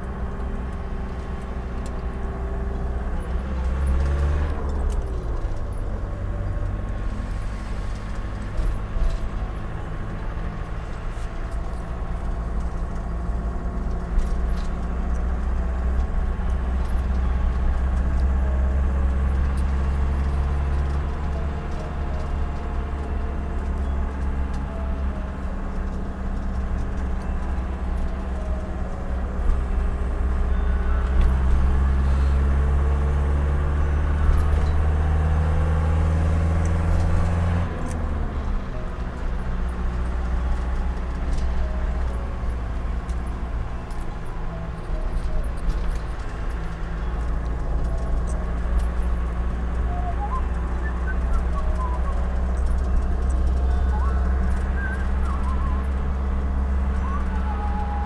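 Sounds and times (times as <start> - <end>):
road noise: 0.0 - 58.0
van engine rumble: 0.0 - 58.0.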